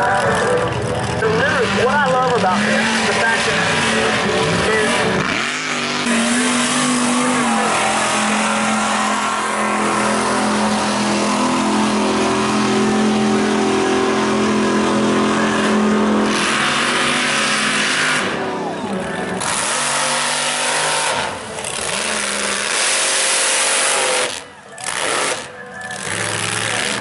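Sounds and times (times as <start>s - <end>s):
truck engine revving high: 0.0s - 27.0s.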